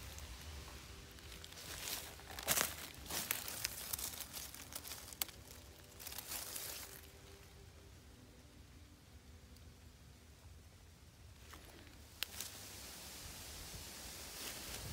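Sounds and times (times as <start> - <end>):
dry leaves rustling and crackling: 0.0 - 7.7, 11.4 - 14.9.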